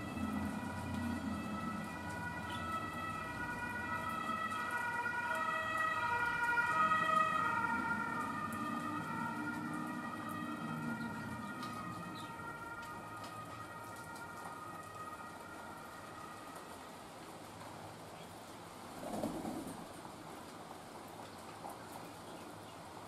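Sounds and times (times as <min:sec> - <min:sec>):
emergency vehicle siren: 0:00.0 - 0:17.2
steady rain: 0:00.0 - 0:23.0.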